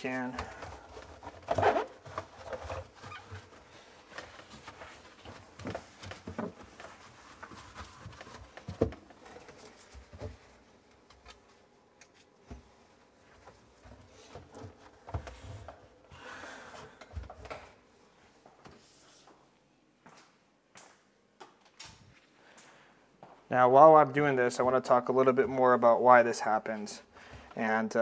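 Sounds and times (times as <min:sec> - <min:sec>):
towel rubbing plastic: 0:00.7 - 0:10.7.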